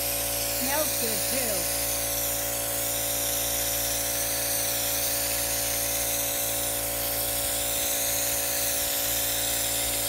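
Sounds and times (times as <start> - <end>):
air compressor hum: 0.0 - 10.0
spray gun hissing: 0.0 - 10.0.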